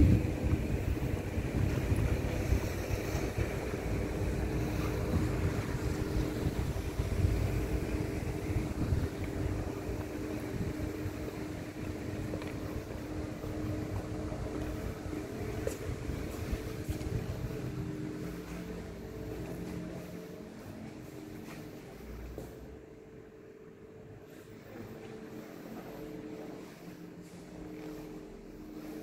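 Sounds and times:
wind rumbling on microphone: 0:00.0 - 0:18.4
low machine hum: 0:00.0 - 0:29.0.

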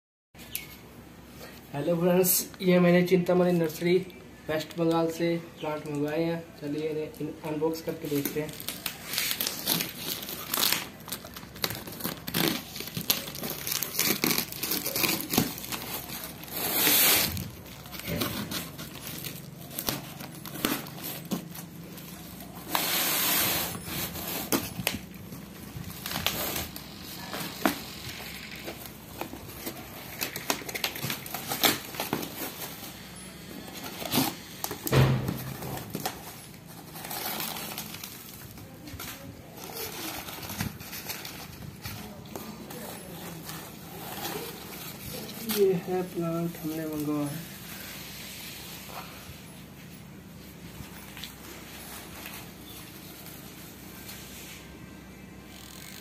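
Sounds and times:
packing tape crackling: 0:05.8 - 0:47.3
cardboard tearing: 0:08.0 - 0:46.0.

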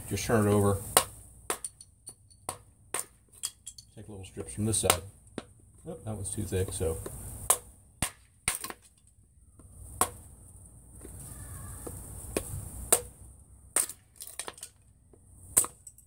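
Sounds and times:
tomahawk chopping wood: 0:00.9 - 0:01.7, 0:02.4 - 0:03.4, 0:04.4 - 0:05.6, 0:06.6 - 0:09.0, 0:09.6 - 0:10.3, 0:11.8 - 0:14.6, 0:15.5 - 0:15.8.

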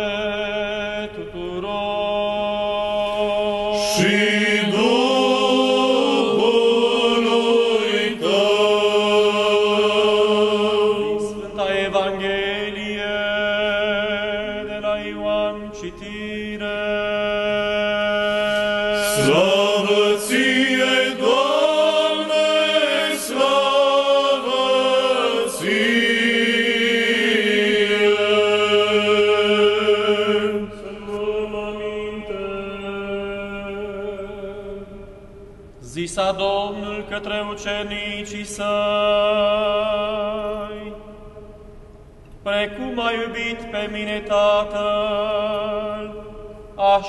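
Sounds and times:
men's choir chanting: 0:03.1 - 0:12.5, 0:19.0 - 0:33.6.

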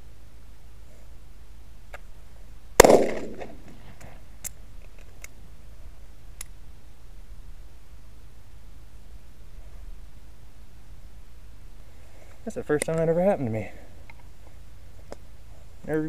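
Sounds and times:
pistol shot echoing: 0:02.8 - 0:03.7
pistol metallic clicks: 0:02.8 - 0:05.4.

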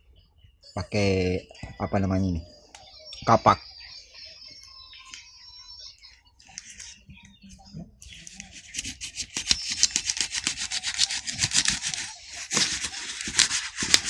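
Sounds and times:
axe blade scraping plastic wrap: 0:08.5 - 0:14.0.

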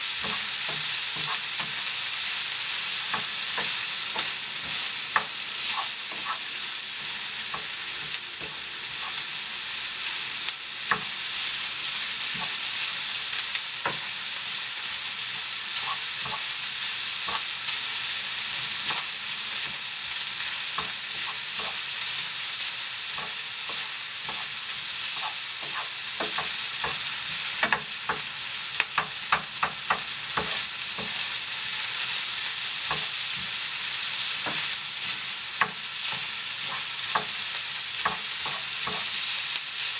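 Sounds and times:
onion and bacon sizzling in a pan: 0:00.0 - 0:39.9
wooden spatula scraping a pan: 0:00.2 - 0:01.9, 0:03.1 - 0:09.2, 0:15.8 - 0:16.5, 0:23.2 - 0:27.4
spatula clicking against pan: 0:03.1 - 0:05.4, 0:10.9 - 0:11.1, 0:23.1 - 0:24.5, 0:25.2 - 0:27.0, 0:27.6 - 0:31.2, 0:35.6 - 0:37.4, 0:38.0 - 0:39.1.

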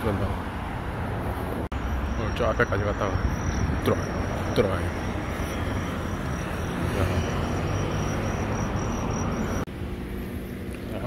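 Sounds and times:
traffic rumble: 0:00.0 - 0:11.0.

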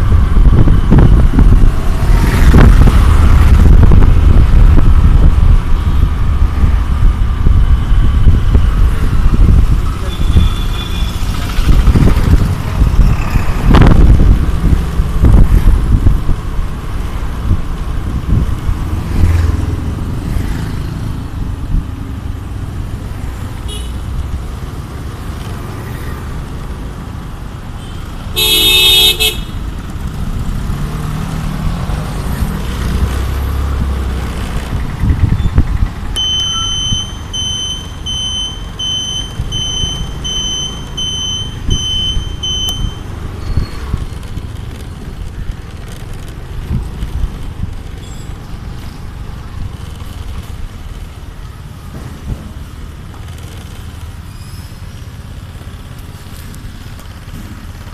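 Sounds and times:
engine and road rumble: 0:00.0 - 0:57.9
vehicle horn honking: 0:28.4 - 0:29.6
high electronic beeping: 0:36.2 - 0:43.8.

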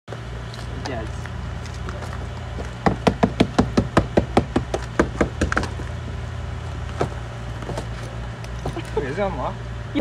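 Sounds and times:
hammer knocking on icy car door: 0:02.8 - 0:05.7.

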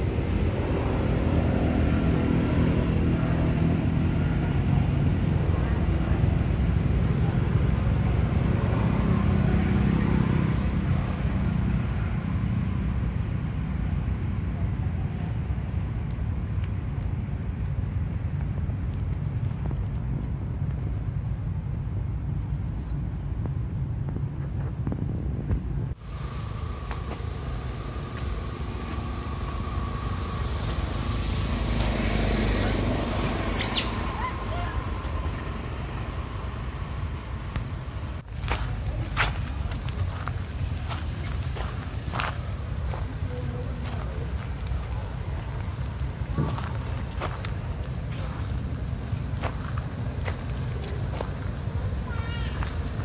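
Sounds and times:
low outdoor background rumble: 0:00.0 - 0:53.0
steady high drone: 0:25.9 - 0:39.1.

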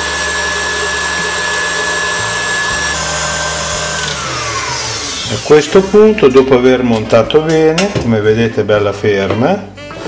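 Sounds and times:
stand mixer whirring and whining: 0:00.0 - 0:06.3.

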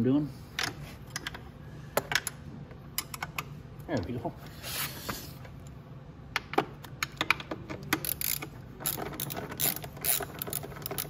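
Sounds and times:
socket ratchet clicking: 0:07.0 - 0:11.0.

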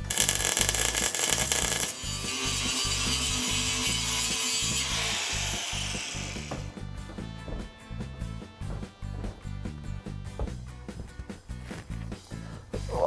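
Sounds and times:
welding arc crackling: 0:00.0 - 0:06.7
background music with beat: 0:06.2 - 0:13.0.

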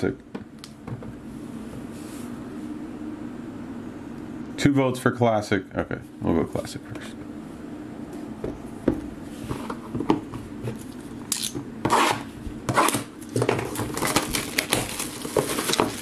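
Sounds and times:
cardboard rubbing scrapes: 0:11.9 - 0:13.1.

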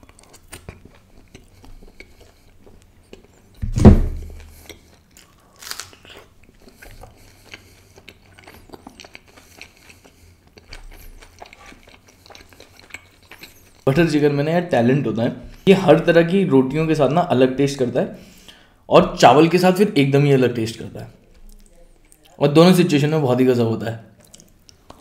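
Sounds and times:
wet chewing: 0:00.0 - 0:03.6, 0:04.2 - 0:14.2, 0:21.2 - 0:22.4, 0:24.2 - 0:25.0
loud deep thump: 0:03.6 - 0:04.4.

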